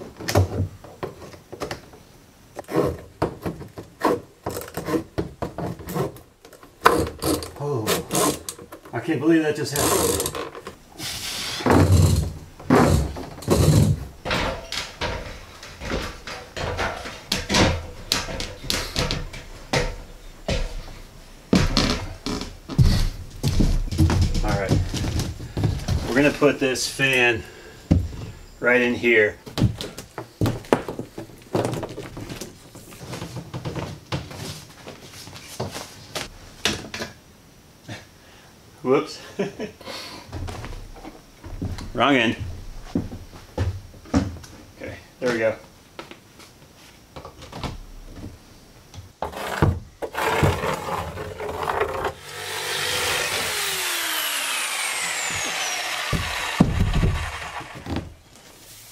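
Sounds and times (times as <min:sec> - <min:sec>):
heavy thuds on wood: 0:11.6 - 0:26.3, 0:27.9 - 0:28.4, 0:56.0 - 0:58.2
footsteps on metal ladder: 0:11.7 - 0:26.5
extension cord knocking and rustling: 0:21.5 - 0:26.2, 0:56.1 - 0:58.2.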